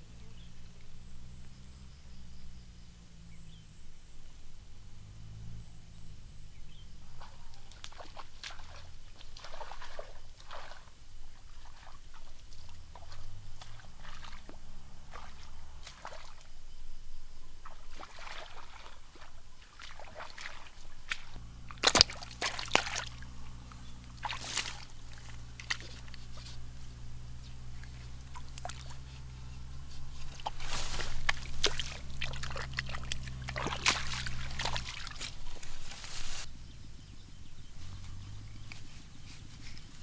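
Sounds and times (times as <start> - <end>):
steps through wet grass and mud: 7.0 - 16.5, 17.6 - 36.5, 37.5 - 40.0
splashes in muddy water: 7.0 - 16.6, 17.6 - 36.5.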